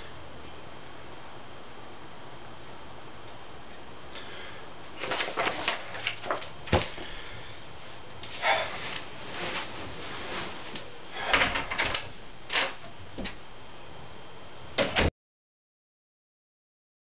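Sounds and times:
thumps and rustles of movement: 5.0s - 7.2s, 7.9s - 12.2s.

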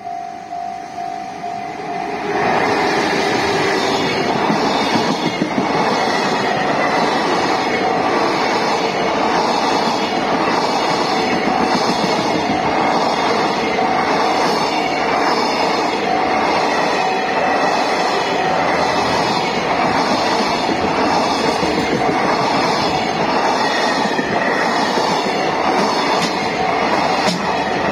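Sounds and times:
level crossing alarm bell ringing: 0.0s - 2.6s
train wheels clattering over rails: 2.7s - 18.0s, 18.7s - 27.9s.

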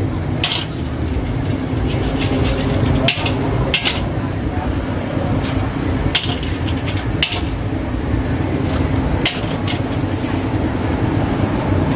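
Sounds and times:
low background rumble: 0.0s - 11.9s
utensils clicking against pan: 1.8s - 4.1s, 6.1s - 7.6s, 9.2s - 10.0s.

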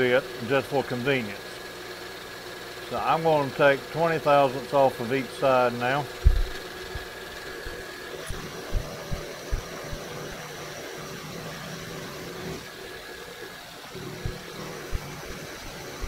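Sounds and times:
faint machine whine: 0.0s - 16.0s
milling machine running: 0.0s - 16.0s
short low thumps: 6.2s - 10.0s.

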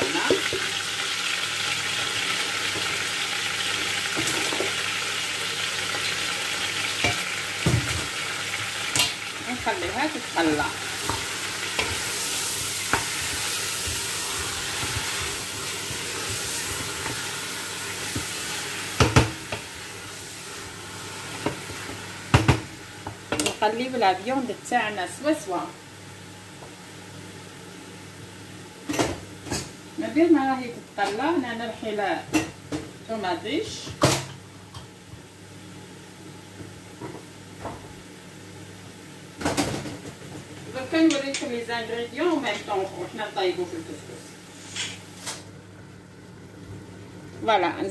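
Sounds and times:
meat sizzling in hot oil: 0.0s - 30.5s.

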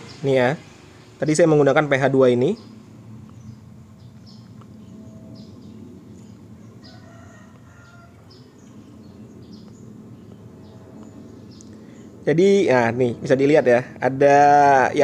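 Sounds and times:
low steady hum: 0.0s - 15.0s
faint bird chirps: 2.4s - 12.2s.

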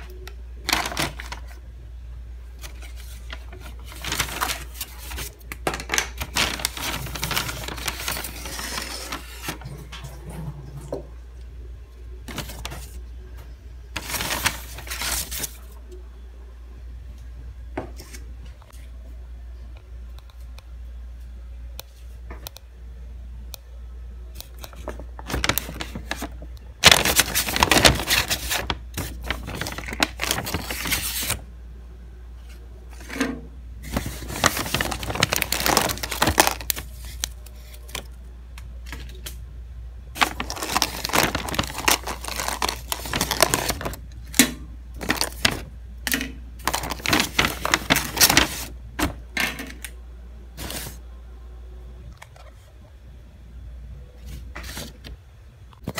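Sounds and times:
paper bag rustling: 0.6s - 1.6s, 2.6s - 10.5s, 12.2s - 13.0s, 13.9s - 15.8s, 24.5s - 31.4s, 33.8s - 38.1s, 40.2s - 44.0s, 45.0s - 45.7s, 46.6s - 49.3s, 50.6s - 51.0s.

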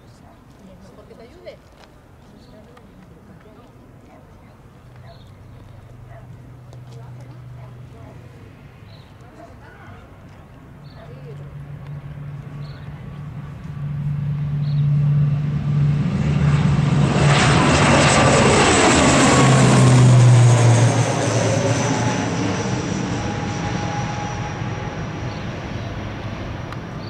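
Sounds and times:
turboprop airliner taking off: 11.4s - 27.0s.

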